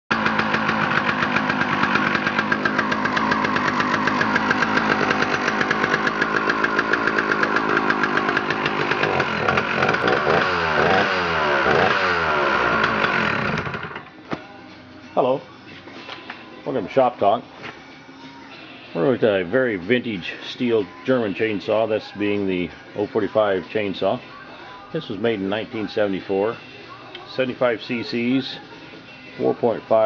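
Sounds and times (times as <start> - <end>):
chainsaw engine revving: 0.1 - 14.0.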